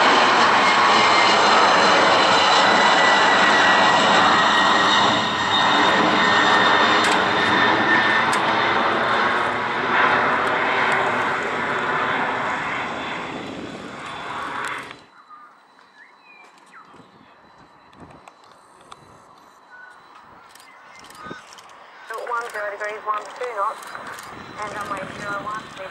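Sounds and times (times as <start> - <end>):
faint jet whine: 0.0 - 25.9
jet engine roar: 0.0 - 25.9.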